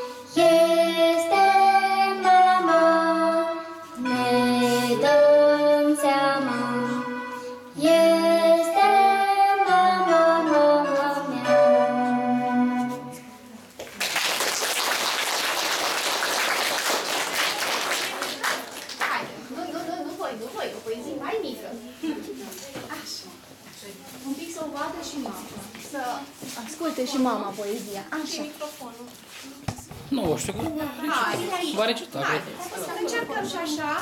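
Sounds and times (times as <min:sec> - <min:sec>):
girl singing: 0:00.0 - 0:13.4
electronic keyboard accompaniment: 0:00.0 - 0:13.6
applause: 0:13.8 - 0:19.3.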